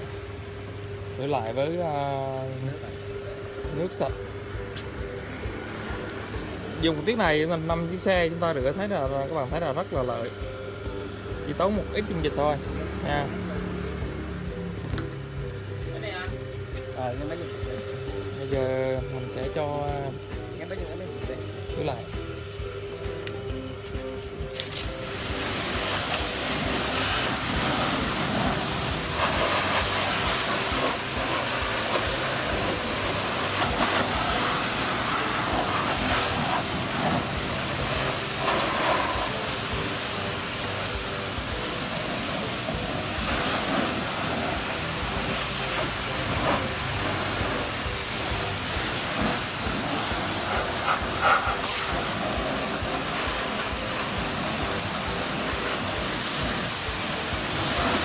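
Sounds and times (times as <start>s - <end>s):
pressure washer jet hissing: 24.5s - 58.0s
spray spattering on bodywork: 24.5s - 58.0s.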